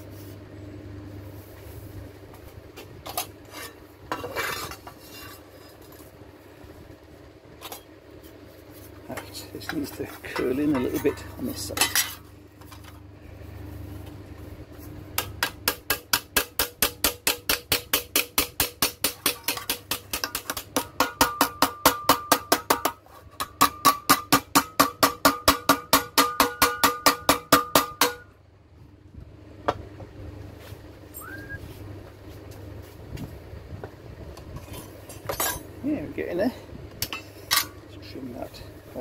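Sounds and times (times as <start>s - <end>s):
metal ringing: 9.2s - 12.3s
hammer striking sheet metal: 15.2s - 28.3s.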